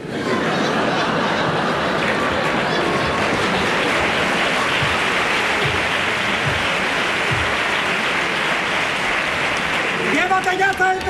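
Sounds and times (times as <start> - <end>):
audience applauding: 0.0 - 11.0
low drum beat: 4.0 - 8.0.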